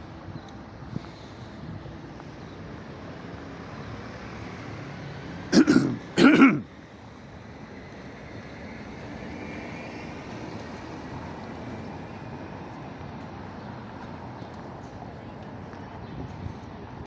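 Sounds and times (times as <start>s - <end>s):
person coughing: 5.5s - 6.6s.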